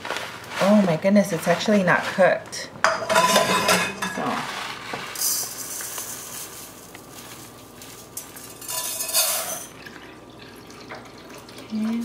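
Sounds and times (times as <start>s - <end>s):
rice bag rustling: 0.0s - 2.6s, 4.2s - 9.0s
rice grains pouring into metal pan: 4.4s - 9.7s.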